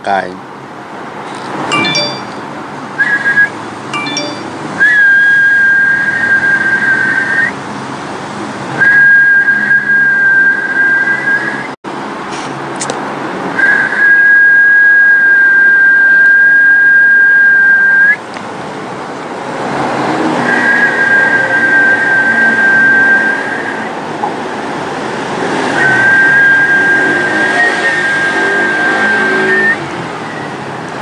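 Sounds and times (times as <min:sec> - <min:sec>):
high whistle-like tone: 0:01.7 - 0:02.4, 0:03.0 - 0:07.6, 0:08.8 - 0:11.8, 0:13.6 - 0:18.2, 0:20.5 - 0:24.0, 0:25.7 - 0:30.6.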